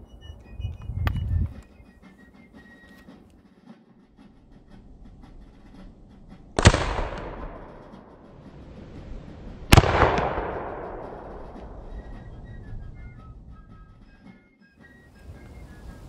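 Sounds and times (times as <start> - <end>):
rifle gunshots with echo: 6.6 - 8.1, 9.7 - 11.8.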